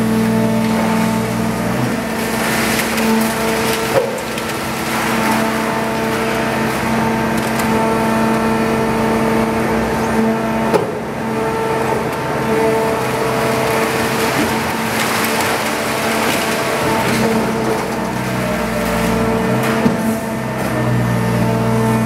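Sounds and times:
hydraulic power unit humming: 0.0s - 22.0s
scrap metal clattering: 0.7s - 6.5s, 13.5s - 20.1s.

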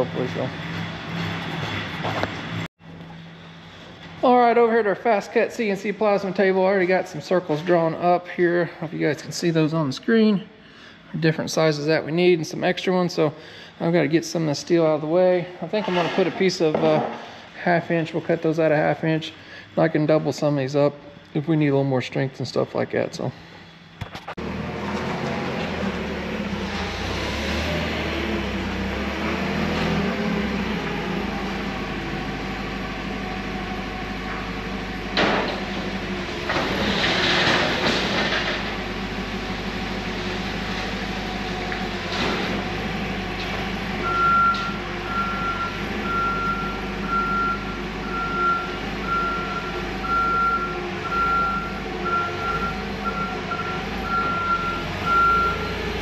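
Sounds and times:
reversing alarm beeping: 44.0s - 56.0s.

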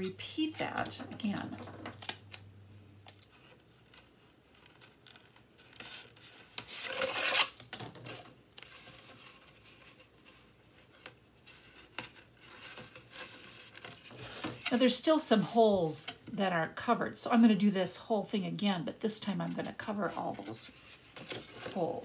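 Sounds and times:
tape clicks and rustles: 0.0s - 10.0s
rasping tape rub: 5.6s - 7.6s.

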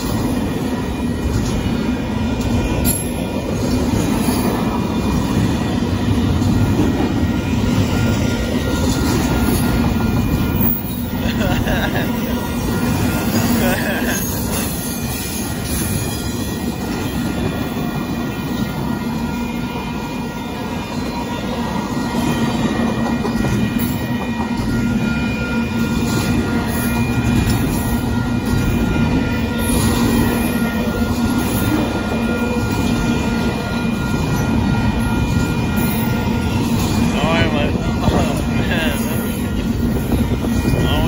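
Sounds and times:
train wheels rumbling on rail: 0.0s - 41.0s.

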